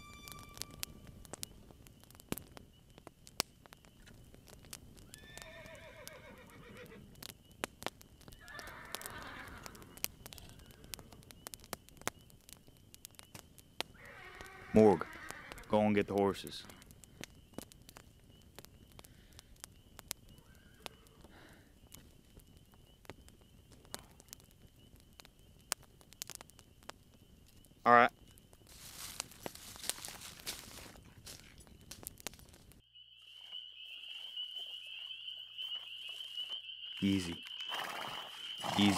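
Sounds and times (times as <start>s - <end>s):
faint steady high tone: 0.0s - 1.4s
campfire crackling: 0.0s - 38.9s
horse whinnying: 5.2s - 7.1s, 8.4s - 9.9s, 14.0s - 15.7s, 37.7s - 38.9s.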